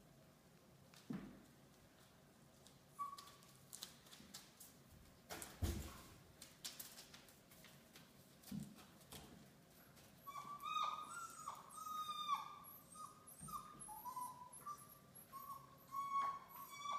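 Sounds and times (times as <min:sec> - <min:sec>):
puppies whining: 0:10.2 - 0:16.9.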